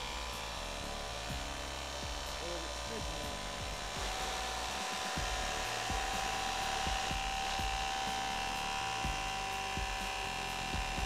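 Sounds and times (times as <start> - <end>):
impact wrench whine: 0.0 - 11.0
impact wrench hammering: 5.0 - 11.0.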